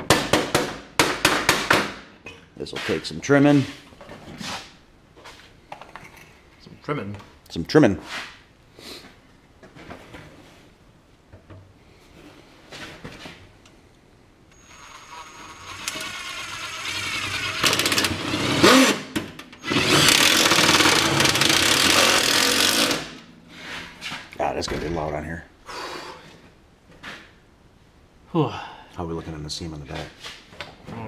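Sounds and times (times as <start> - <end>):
cordless driver driving screws: 14.6 - 19.0, 19.6 - 23.2.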